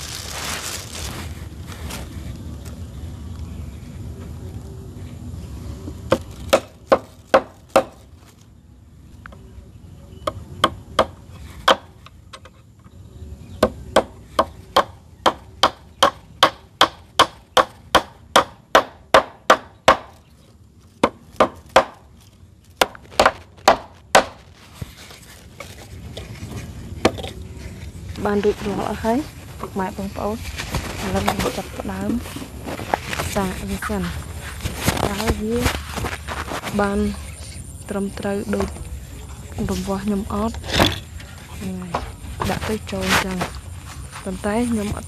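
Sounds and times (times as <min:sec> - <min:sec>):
hand tool striking wood: 0:10.6 - 0:12.5, 0:22.8 - 0:24.4.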